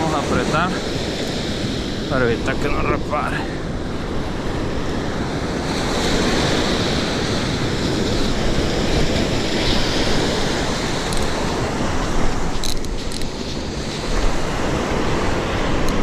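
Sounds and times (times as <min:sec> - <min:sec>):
surf breaking on a beach: 0:00.0 - 0:16.0
wind on microphone: 0:00.0 - 0:16.0.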